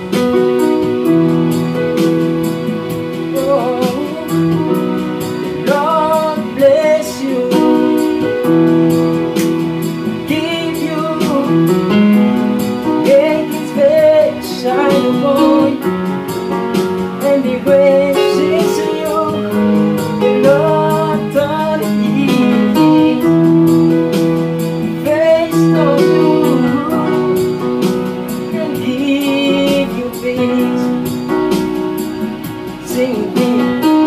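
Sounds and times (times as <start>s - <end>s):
electronic keyboard gospel tune: 0.0s - 34.0s.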